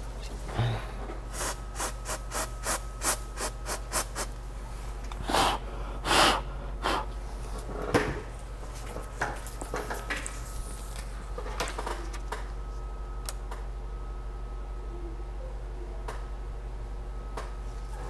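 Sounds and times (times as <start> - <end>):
aerosol spray hissing: 1.3 - 4.3.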